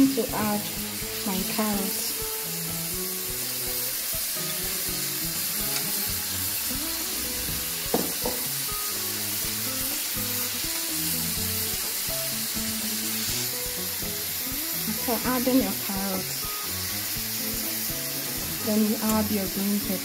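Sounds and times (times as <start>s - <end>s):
meat sizzling in a frying pan: 0.0s - 20.0s
soft background music: 0.0s - 20.0s
sharp knock: 7.9s - 8.4s.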